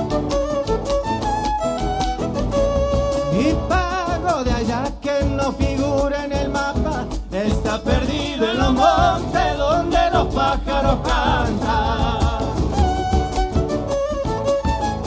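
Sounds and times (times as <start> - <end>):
fiddle melody with vibrato: 0.0 - 4.2, 12.5 - 15.0
acoustic guitar: 0.0 - 15.0
drum beats: 0.0 - 15.0.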